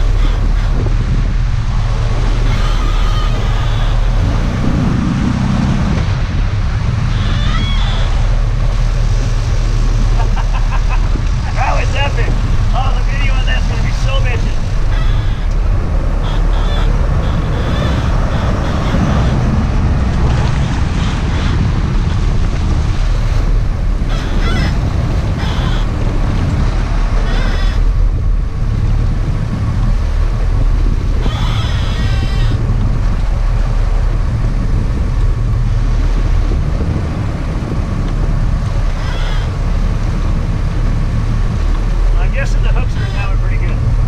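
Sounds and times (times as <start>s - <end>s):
boat engines rumbling: 0.0s - 44.0s
rushing water: 0.0s - 44.0s
wind on microphone: 0.0s - 44.0s
high-pitched squeals: 2.4s - 4.6s, 7.1s - 8.4s, 13.9s - 19.8s, 24.0s - 26.1s, 27.2s - 27.9s, 31.2s - 32.6s, 38.8s - 39.6s, 42.6s - 43.4s.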